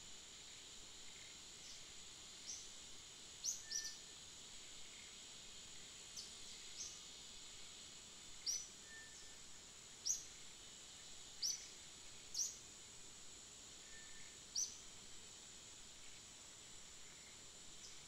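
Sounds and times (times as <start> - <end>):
high-pitched insect drone: 3.4 - 4.2.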